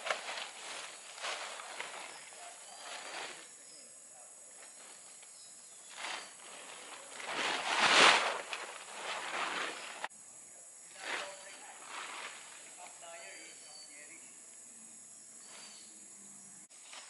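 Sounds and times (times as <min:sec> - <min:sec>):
plastic tarp rustling: 0:00.0 - 0:03.5, 0:05.8 - 0:10.1, 0:11.0 - 0:12.9
tarp swishing when shaken: 0:00.0 - 0:03.5, 0:05.8 - 0:10.1, 0:11.0 - 0:12.8.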